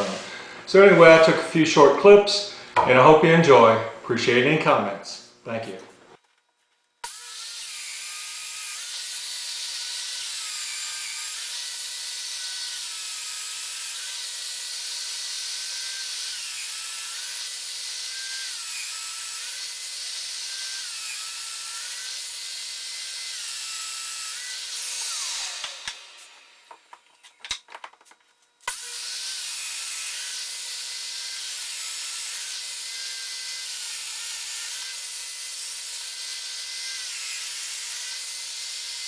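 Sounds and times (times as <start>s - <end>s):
power joiner whining: 7.0s - 27.5s, 28.6s - 39.0s.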